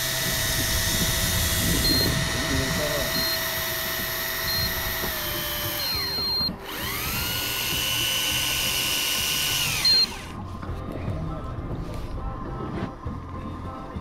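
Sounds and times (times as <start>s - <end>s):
fishing reel motor whining: 0.0s - 10.4s
short high beeps: 1.8s - 2.2s, 3.0s - 3.4s, 4.5s - 4.8s, 6.0s - 6.6s.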